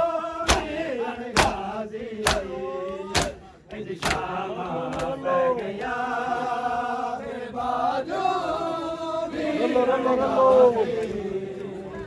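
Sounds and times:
men chanting together: 0:00.0 - 0:12.0
hands slapping bare chests: 0:00.5 - 0:05.2.

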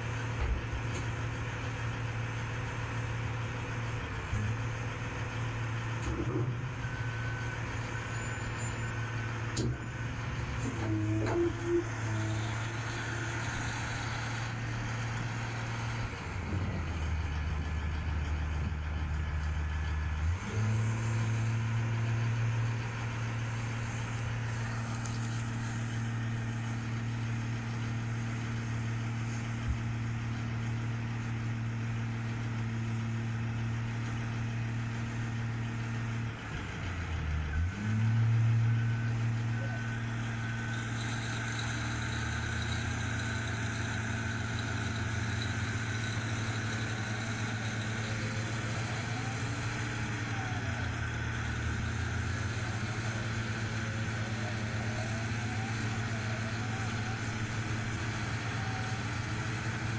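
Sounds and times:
heavy diesel engines droning: 0:00.0 - 0:59.9
engine revving up: 0:09.5 - 0:28.0, 0:36.5 - 0:59.9.

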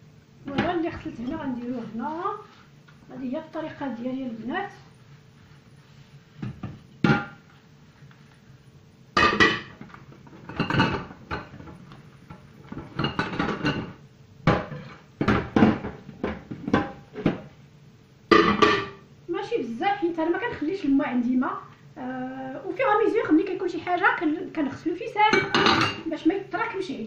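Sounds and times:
dishes clattering in sink: 0:06.4 - 0:07.4, 0:09.2 - 0:17.5, 0:18.3 - 0:19.0, 0:25.3 - 0:26.1.

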